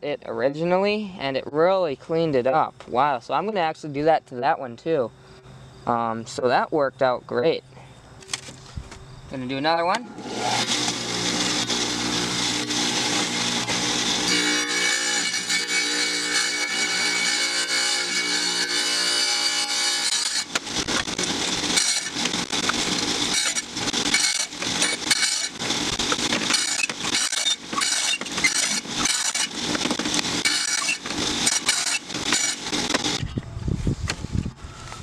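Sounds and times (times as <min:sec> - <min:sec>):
saw blade grinding glass bottle: 0:10.2 - 0:33.2.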